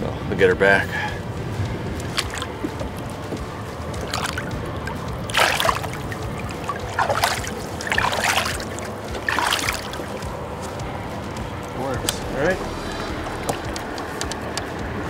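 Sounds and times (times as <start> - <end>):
water splashing: 1.3 - 15.0
low rumble: 10.2 - 15.0.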